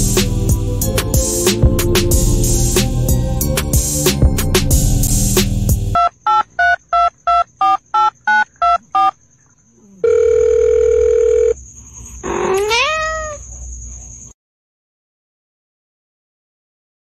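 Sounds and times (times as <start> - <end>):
telephone keypad beeps: 6.0 - 9.1
steady telephone tone: 10.0 - 11.6
rising meow-like call: 12.2 - 13.4.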